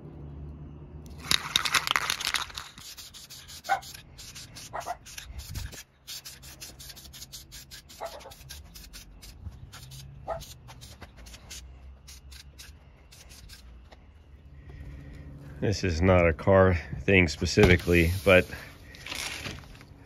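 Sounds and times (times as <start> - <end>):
spray paint can hissing: 1.3 - 13.7, 17.8 - 18.6.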